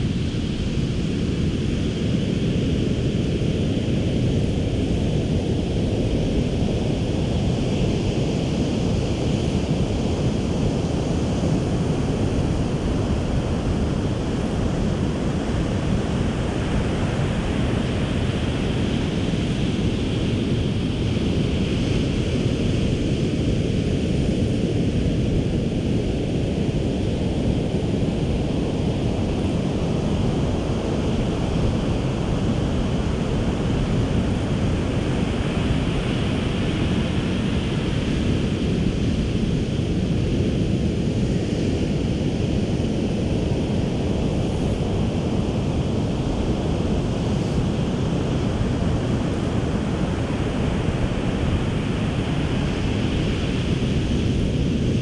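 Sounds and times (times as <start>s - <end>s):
wind on the microphone: 0.0s - 55.0s
ocean surf on a beach: 43.6s - 55.0s.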